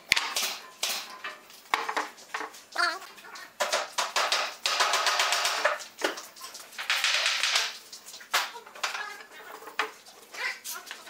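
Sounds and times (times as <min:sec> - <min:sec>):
boards knocking: 0:03.6 - 0:06.2.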